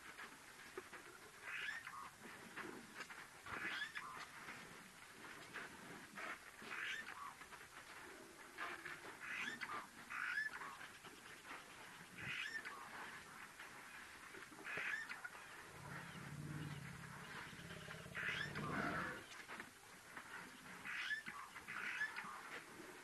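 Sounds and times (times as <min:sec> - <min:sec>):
low pitched rumble: 0:15.7 - 0:19.2.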